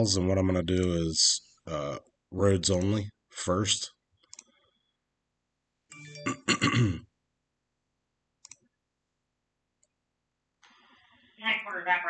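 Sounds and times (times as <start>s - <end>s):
computer mouse click: 4.2s - 4.6s, 8.4s - 8.7s.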